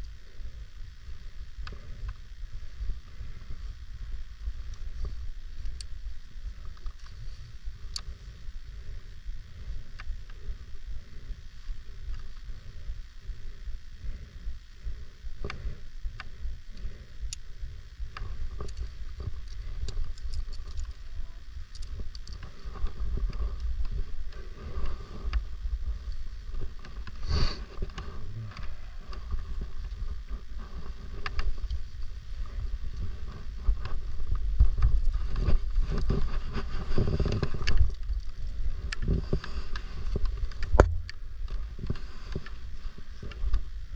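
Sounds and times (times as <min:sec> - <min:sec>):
gusting wind rumble on microphone: 0:17.6 - 0:43.9.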